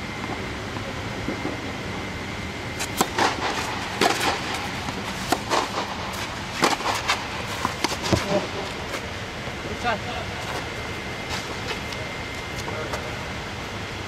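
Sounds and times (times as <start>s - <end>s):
steady mechanical hum: 0.0s - 14.0s
tennis racket hitting ball: 2.8s - 8.4s.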